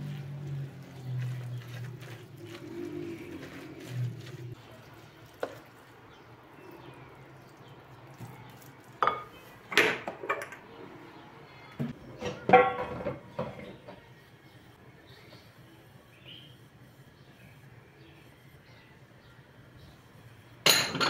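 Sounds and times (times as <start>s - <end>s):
wooden spoon stirring batter: 0.0s - 9.7s
cookware knocking and clanking: 9.0s - 10.7s, 12.2s - 14.0s, 20.7s - 21.0s.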